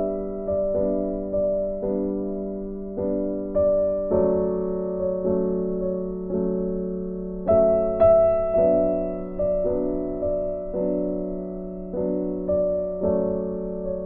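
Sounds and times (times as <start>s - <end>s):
slow piano melody: 0.0s - 14.0s.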